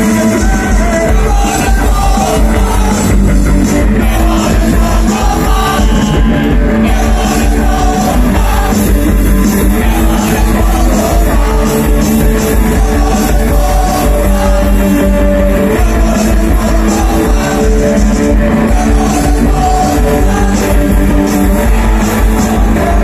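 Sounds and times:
live punk rock band: 0.0 - 23.0
person singing: 0.0 - 23.0.

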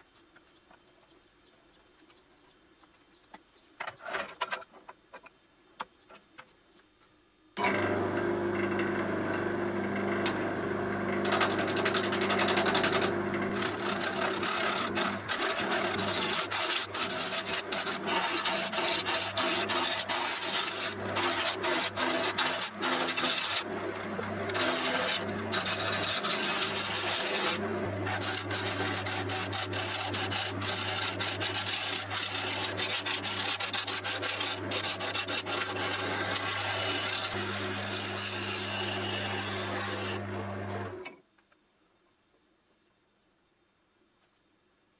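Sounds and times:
wood lathe motor humming: 7.6 - 41.0
gouge scraping and chattering: 11.3 - 23.6, 24.3 - 40.2.

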